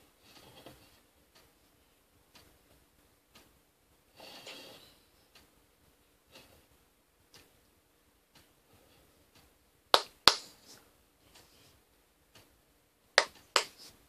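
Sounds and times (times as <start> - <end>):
hands slapping together: 10.0 - 10.5, 13.2 - 13.8.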